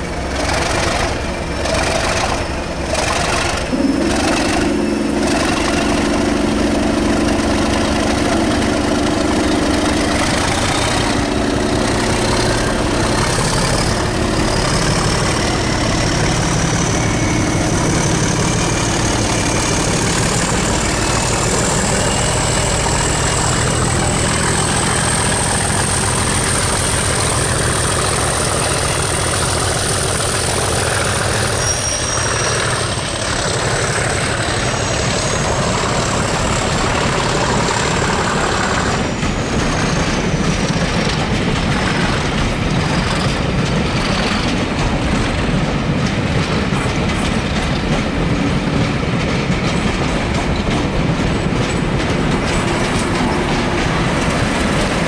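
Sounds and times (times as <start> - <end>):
diesel locomotive engine rumble: 0.0 - 55.0.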